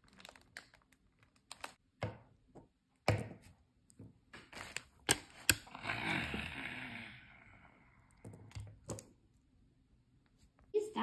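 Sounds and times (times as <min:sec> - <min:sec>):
plastic wrapper crinkling: 0:00.0 - 0:01.8.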